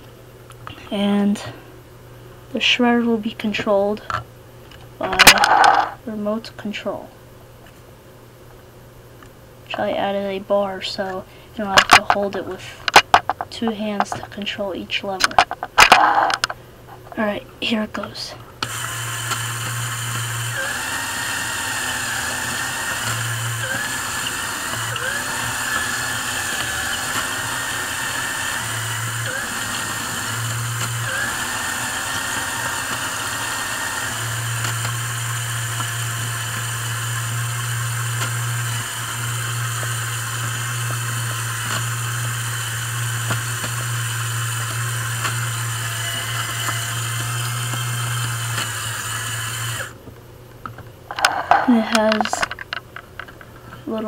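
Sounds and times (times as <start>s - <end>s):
electric motors whirring: 18.6s - 50.0s
shredder whine: 18.6s - 50.0s.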